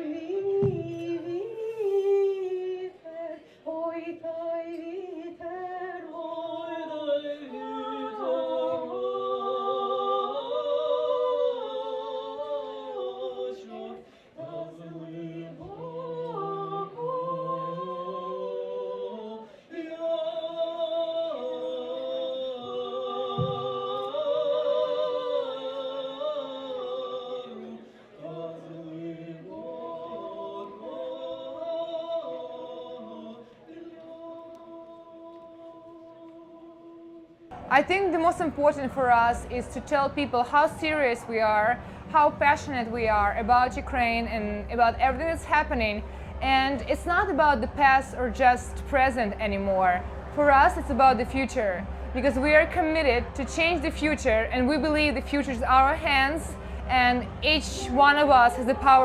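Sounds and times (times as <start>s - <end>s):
woman singing: 0.0s - 14.6s, 37.7s - 59.0s.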